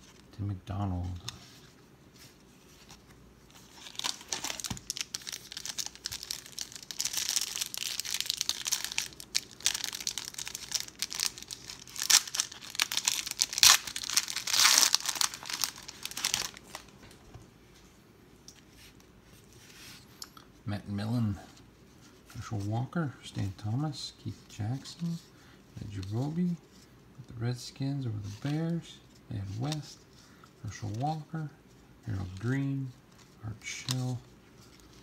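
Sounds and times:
foil wrapper crinkling and tearing: 0:03.6 - 0:16.9.

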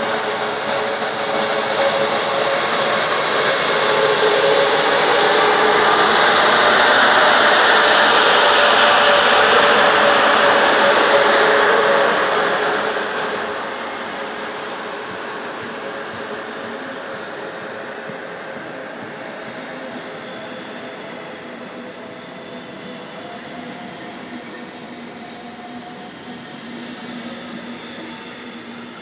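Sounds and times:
train rolling past: 0:00.0 - 0:29.0.

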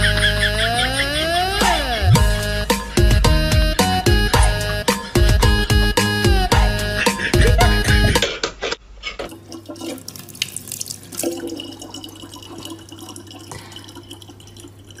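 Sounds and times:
upbeat music: 0:00.0 - 0:08.3
tap water running into sink: 0:09.3 - 0:15.0
water drips and splashes: 0:09.3 - 0:15.0.

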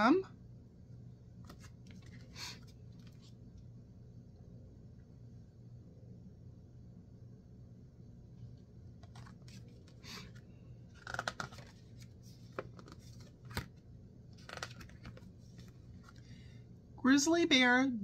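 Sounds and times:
faint steady hum: 0:00.0 - 0:18.0
book pages rustling: 0:01.4 - 0:03.4, 0:09.0 - 0:16.4.

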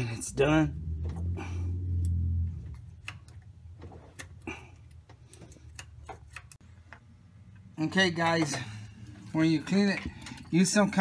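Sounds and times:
low hum: 0:00.4 - 0:03.5.

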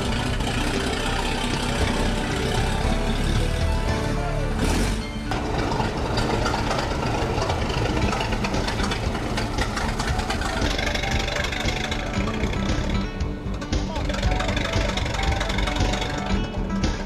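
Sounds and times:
engine idling with ticking rattle: 0:00.0 - 0:17.0.

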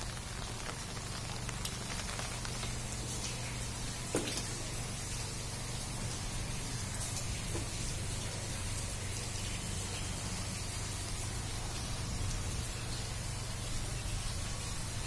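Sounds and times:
rain on wet road: 0:00.0 - 0:04.6.

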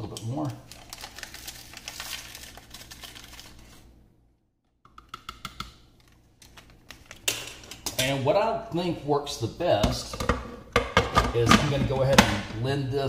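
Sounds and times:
paper packet tearing and crinkling: 0:00.2 - 0:03.9.

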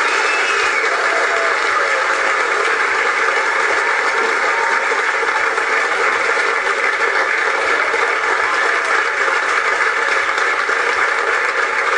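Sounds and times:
audience cheering and applauding: 0:00.0 - 0:11.9.

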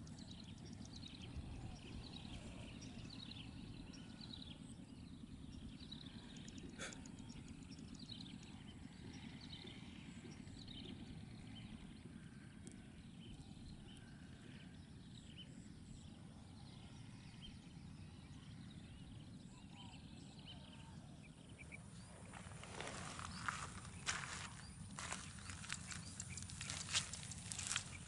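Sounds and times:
low background rumble: 0:00.0 - 0:28.0
ducks whistling calls: 0:22.2 - 0:28.0.

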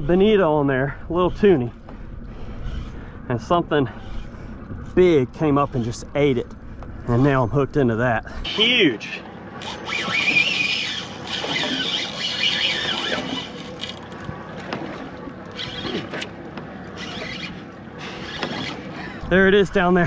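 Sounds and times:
fishing reel drag squealing: 0:09.6 - 0:14.1, 0:15.5 - 0:16.2, 0:16.9 - 0:18.9.

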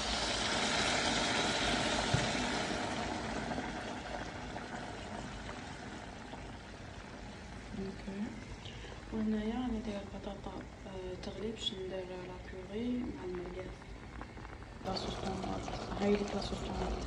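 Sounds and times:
water poured into hot pot: 0:00.0 - 0:07.8, 0:14.9 - 0:17.0.

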